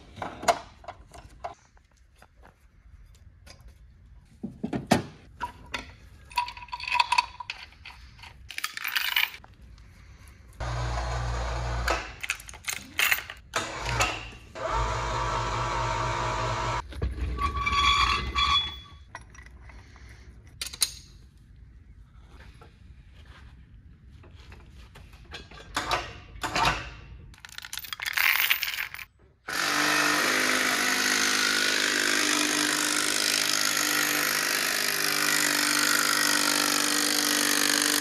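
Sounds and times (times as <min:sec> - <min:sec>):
metal tools and chain rattling: 0:06.3 - 0:09.5, 0:12.2 - 0:14.0, 0:17.7 - 0:21.2, 0:27.4 - 0:29.1
power tool running: 0:10.6 - 0:12.2, 0:13.6 - 0:16.8, 0:29.5 - 0:38.0.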